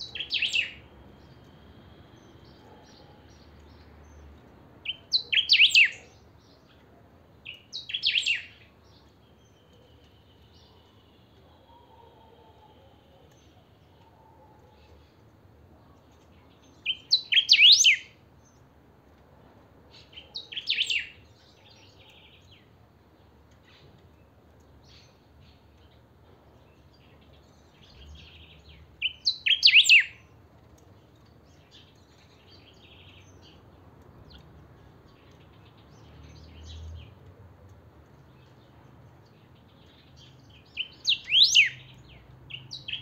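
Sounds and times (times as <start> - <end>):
bird singing sweeping notes: 0.0 - 1.5, 4.9 - 6.2, 16.8 - 18.1, 27.8 - 30.2, 40.8 - 43.0.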